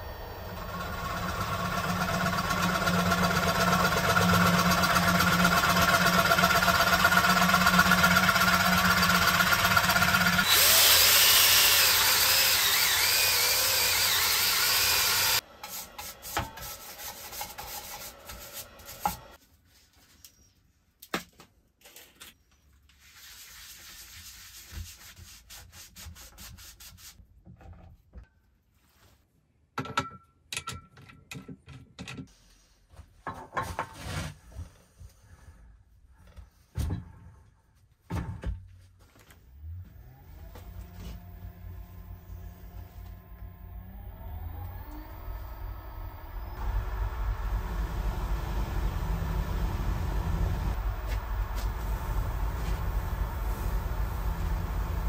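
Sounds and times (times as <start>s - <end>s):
wood lathe motor hum: 0.0s - 16.1s, 39.6s - 55.0s
scraper cutting spinning wood: 0.1s - 19.4s, 40.4s - 55.0s
sanding disc hissing on wood: 10.4s - 19.4s, 41.0s - 55.0s.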